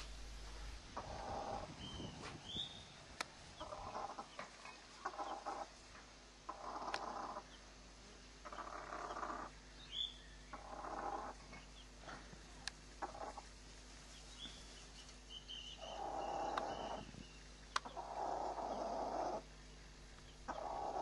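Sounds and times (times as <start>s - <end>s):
chick peeping: 1.0s - 2.8s, 3.6s - 5.8s, 6.5s - 7.6s, 8.4s - 11.9s, 13.0s - 13.5s, 14.1s - 19.5s, 20.2s - 21.0s
hen calling: 15.3s - 19.5s, 20.2s - 21.0s.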